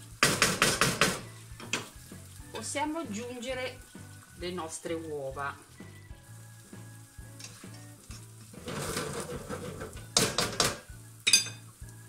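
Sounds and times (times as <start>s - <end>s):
eggs sizzling in frying pan: 0.0s - 12.0s
spatula knocking against pan: 0.2s - 1.9s, 10.2s - 10.8s
spatula stirring: 7.3s - 10.6s.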